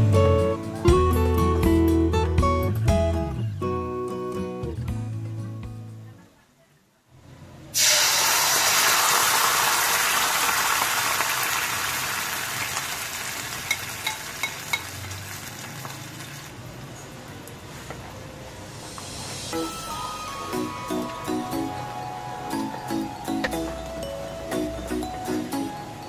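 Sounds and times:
sauce sizzling in a wok: 0:07.7 - 0:16.6.

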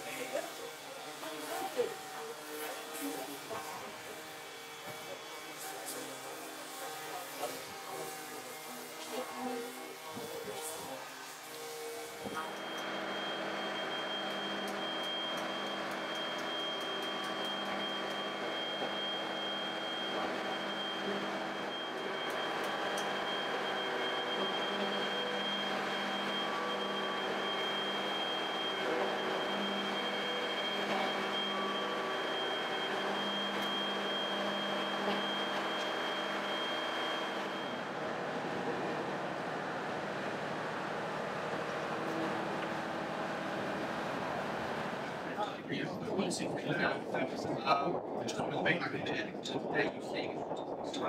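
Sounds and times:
machinery low hum: 0:06.0 - 0:51.0
high whine: 0:12.0 - 0:51.0.

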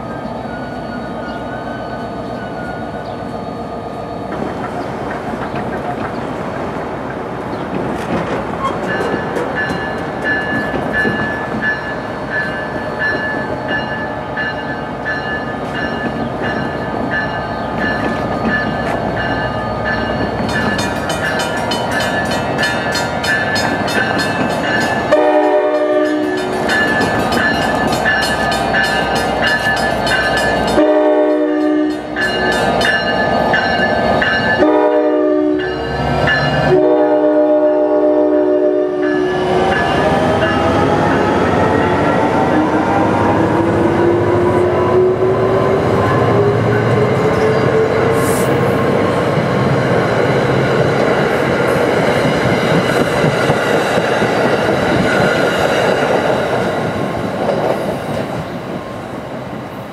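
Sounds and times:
diesel locomotive engine and wheel rumble: 0:00.0 - 0:59.9
locomotive bell ringing: 0:08.6 - 0:37.0, 0:39.0 - 0:41.0
locomotive air horn blasts: 0:25.1 - 0:26.5, 0:30.7 - 0:32.2, 0:34.6 - 0:35.9, 0:36.6 - 0:39.4.

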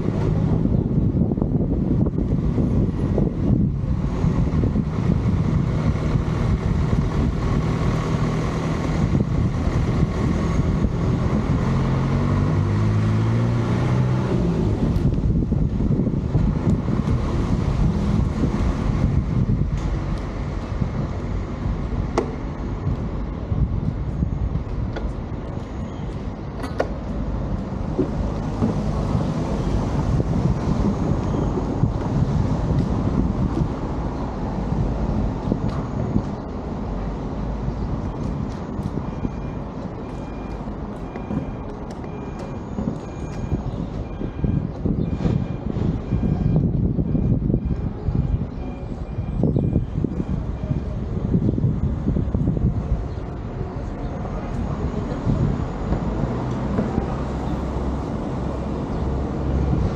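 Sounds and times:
vehicle rumbling: 0:00.0 - 0:59.9
wind buffeting microphone: 0:00.0 - 0:59.9.

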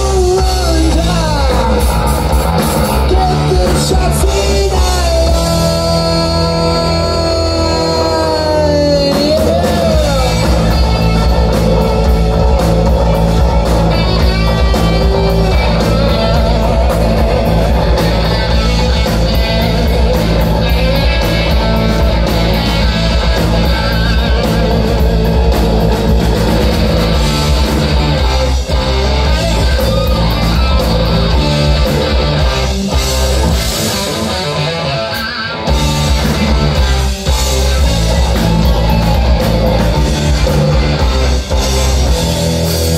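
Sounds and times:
person singing: 0:00.0 - 0:26.2
bass guitar: 0:00.0 - 0:42.9
distorted electric guitars: 0:00.0 - 0:42.9
drum kit: 0:00.0 - 0:42.9.

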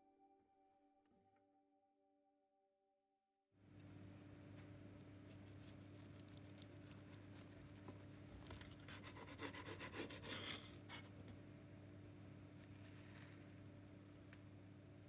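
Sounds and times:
low steady hum: 0:03.6 - 0:15.0
knife crunching through toasted bread: 0:05.2 - 0:11.2.

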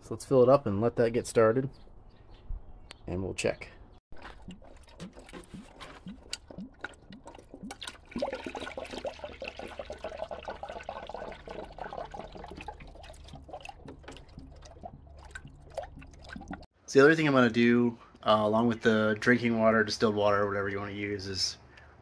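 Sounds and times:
water pouring into a funnel: 0:04.2 - 0:16.7.

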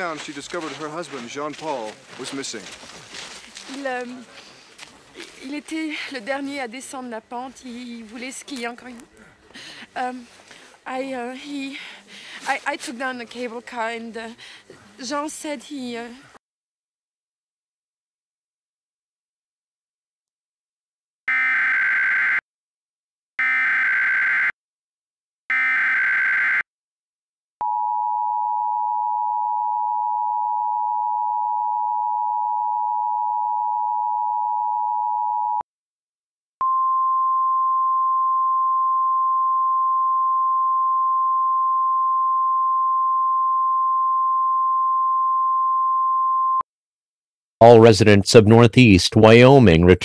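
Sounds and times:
two-tone attention signal: 0:36.6 - 0:46.6.

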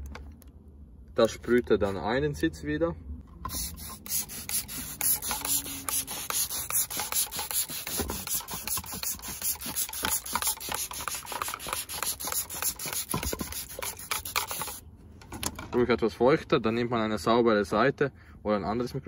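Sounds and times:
spray bottle hissing: 0:03.5 - 0:14.8.

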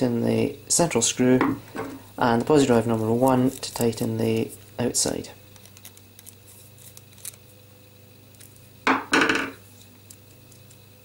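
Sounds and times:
screwdriver clattering on tabletop: 0:08.9 - 0:09.6.

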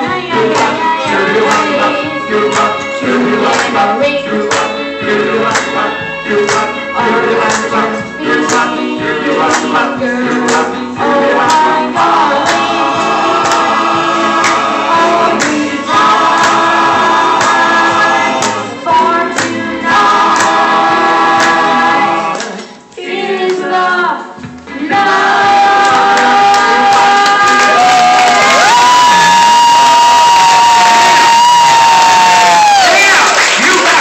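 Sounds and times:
boy singing into microphone: 0:00.0 - 0:05.1
music with steady beat: 0:00.0 - 0:29.3.

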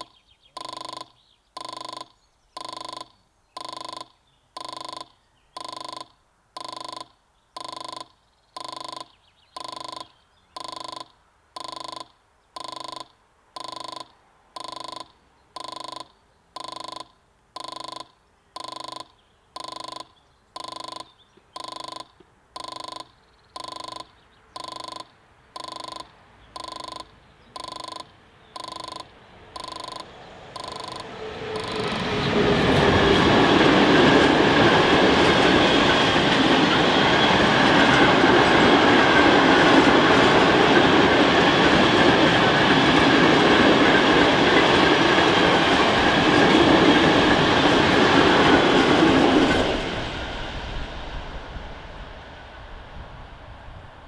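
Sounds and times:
level crossing warning bell: 0:00.0 - 0:48.6
approaching train rumble: 0:29.2 - 0:54.0.

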